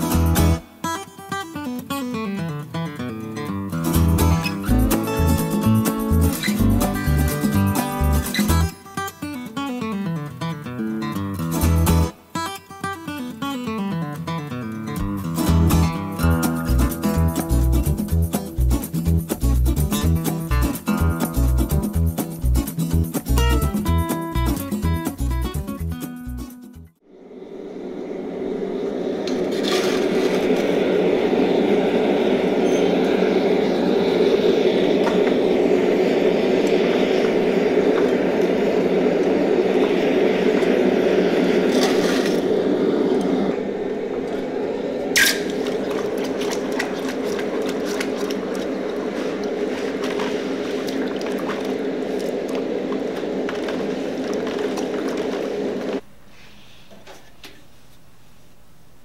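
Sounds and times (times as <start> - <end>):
gas forge burner rushing: 27.1 - 56.1.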